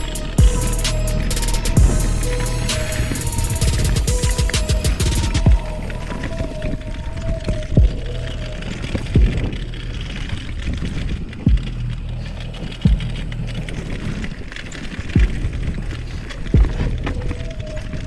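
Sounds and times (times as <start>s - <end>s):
electronic music bass-drum thump: 0.0s - 6.2s, 7.7s - 8.1s, 9.1s - 9.7s, 11.4s - 11.9s, 12.8s - 13.4s, 15.2s - 15.8s, 16.6s - 17.2s
bike tyres rumbling on gravel: 0.0s - 18.0s
wind noise: 0.0s - 18.0s.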